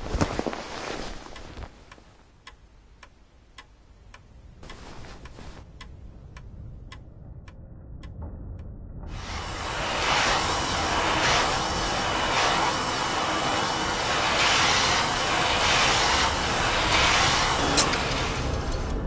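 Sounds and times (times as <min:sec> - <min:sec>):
bedclothes rustling: 0:00.0 - 0:02.2, 0:04.6 - 0:05.7
clock ticking: 0:01.3 - 0:08.7
vacuum cleaner running: 0:09.1 - 0:19.0.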